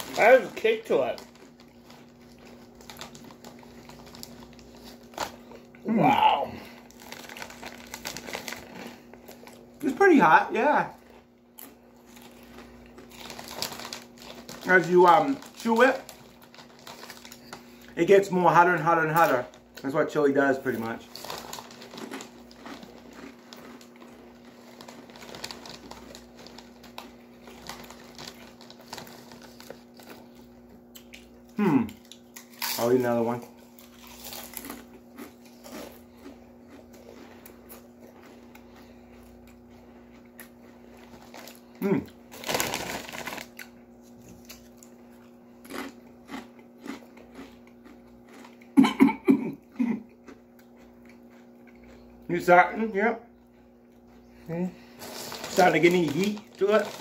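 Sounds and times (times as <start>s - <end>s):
foil snack bag rustling: 0.0s - 30.6s, 40.7s - 45.0s, 54.7s - 57.0s
chips crunching: 0.0s - 48.8s, 54.9s - 57.0s
faint steady hum: 0.0s - 57.0s.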